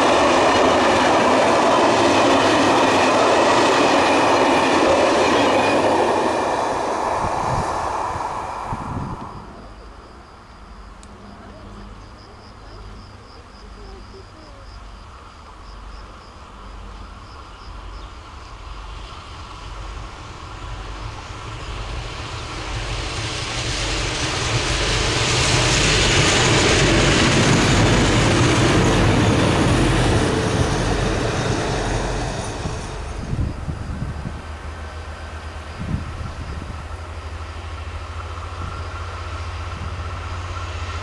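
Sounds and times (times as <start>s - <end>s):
train wheels rushing on rails: 0.0s - 11.2s, 14.8s - 41.0s
diesel locomotive engine hum: 0.0s - 41.0s.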